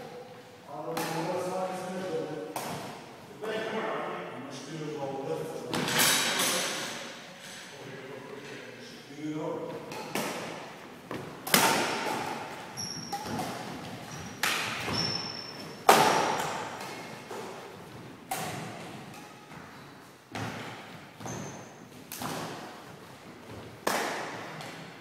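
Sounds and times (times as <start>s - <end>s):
racket hitting shuttlecock: 9.9s - 17.6s, 18.2s - 19.7s, 20.3s - 22.8s, 23.8s - 25.0s
sneaker squeaks on wooden floor: 12.6s - 15.8s, 21.2s - 22.0s.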